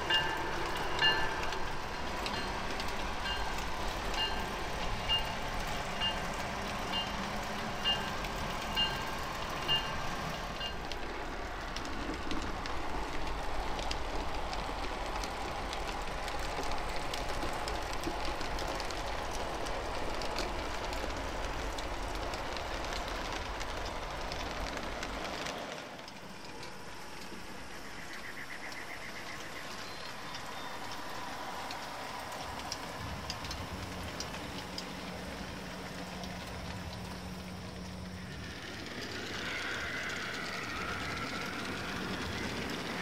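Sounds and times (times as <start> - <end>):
model locomotive bell ringing: 0.0 - 11.0
model trains rumbling: 0.0 - 43.0.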